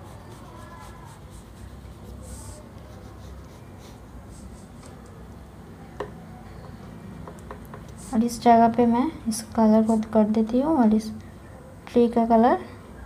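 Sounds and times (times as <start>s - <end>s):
oil pastel scratching on paper: 0.0s - 4.9s.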